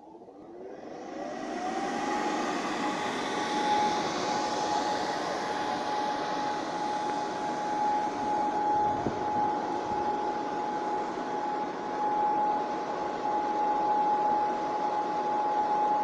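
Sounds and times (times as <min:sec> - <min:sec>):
electric blower motor whine: 0:00.0 - 0:16.0
rushing air: 0:01.3 - 0:10.3.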